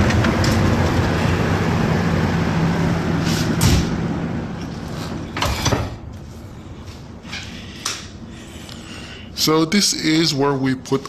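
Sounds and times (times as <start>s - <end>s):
machinery humming: 0.0s - 11.0s
heavy steel door clunking: 5.1s - 6.1s.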